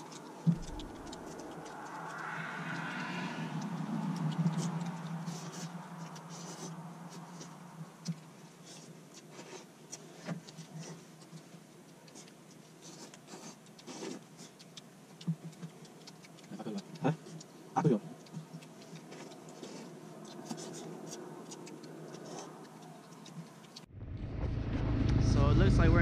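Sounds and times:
low hum: 0:00.0 - 0:08.7, 0:23.8 - 0:26.0.

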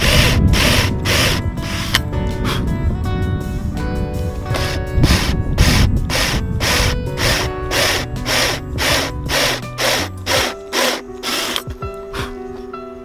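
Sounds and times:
cordless drill boring wood: 0:00.0 - 0:02.0, 0:04.5 - 0:11.6
dance music: 0:04.5 - 0:12.3.

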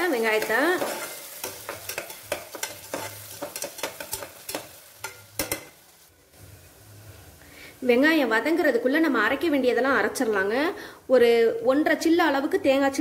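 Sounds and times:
onions sizzling in oil: 0:00.0 - 0:10.2
metal spatula scraping pot: 0:00.3 - 0:05.8.

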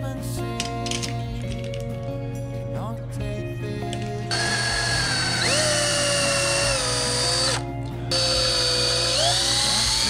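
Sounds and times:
cordless drill boring into wood: 0:04.3 - 0:10.0.

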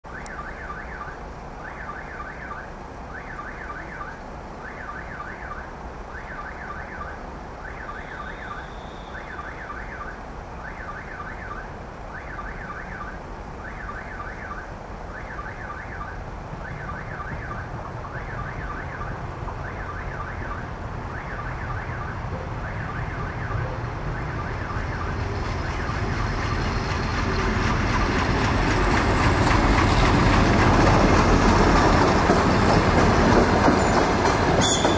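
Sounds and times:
train approaching rumble: 0:22.2 - 0:34.9.

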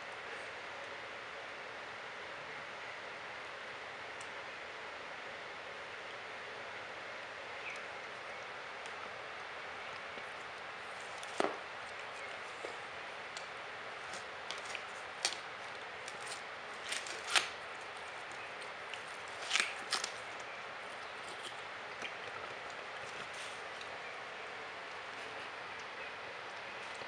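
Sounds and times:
animal chewing watermelon: 0:09.8 - 0:27.0.

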